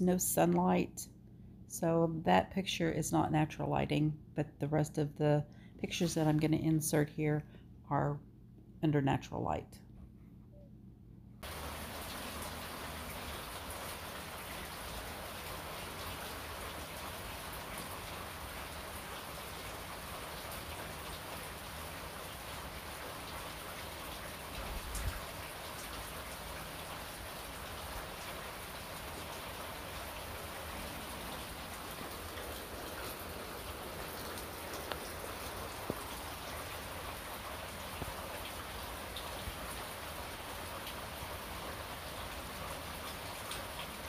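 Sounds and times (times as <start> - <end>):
rain-like hiss: 11.4 - 44.0.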